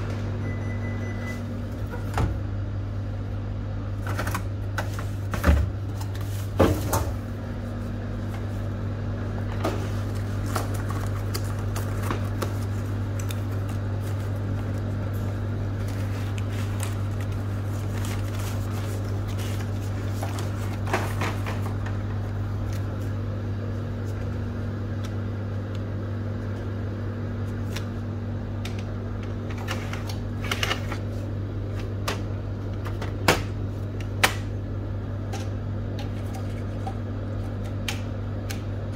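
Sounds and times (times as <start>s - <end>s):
steady low hum: 0.0s - 38.9s.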